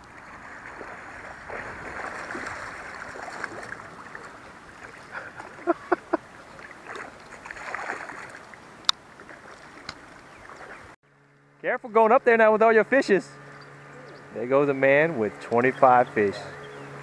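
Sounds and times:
river water sloshing and splashing: 0.0 - 11.0.

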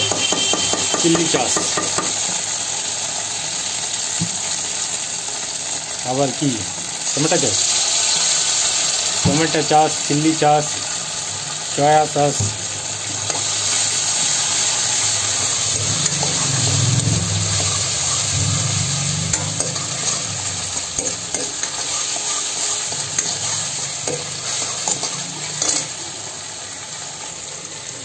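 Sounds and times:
food sizzling in a wok: 0.0 - 28.0
ladle scraping a wok: 13.2 - 26.0.

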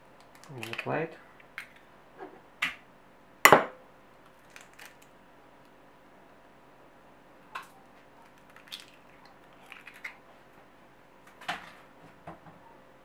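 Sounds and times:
egg cracking into a bowl: 7.6 - 10.2.

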